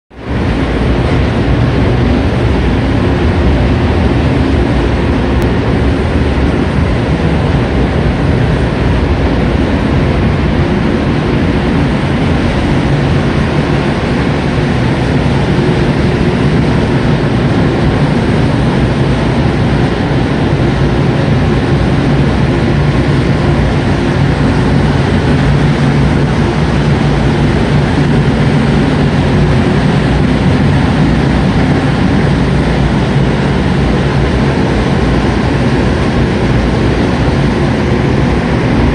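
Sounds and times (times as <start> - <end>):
low hum: 0.1 - 38.9
ventilation fans rushing air: 0.1 - 38.9.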